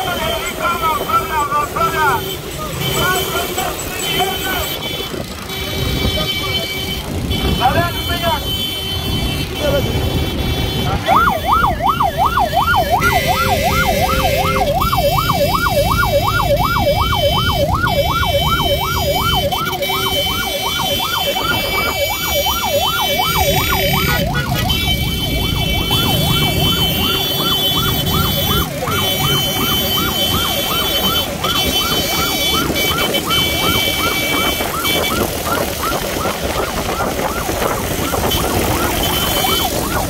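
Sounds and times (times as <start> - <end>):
motorcycle engines: 0.0 - 40.0
traffic: 0.0 - 40.0
warbling electronic siren: 11.0 - 40.0.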